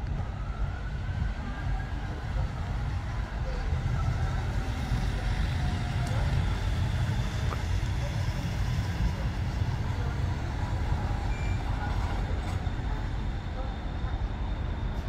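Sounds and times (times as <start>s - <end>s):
tram rumbling: 0.0s - 15.0s
tram running hiss: 3.4s - 15.0s.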